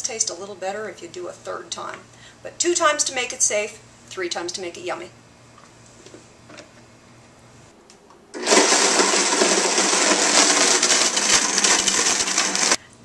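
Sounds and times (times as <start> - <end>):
blender whirring at high speed: 8.4 - 12.8.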